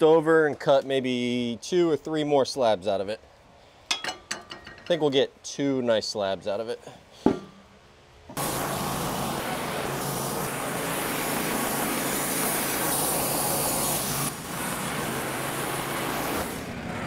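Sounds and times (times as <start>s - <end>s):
sawmill engine hum: 8.3s - 17.0s.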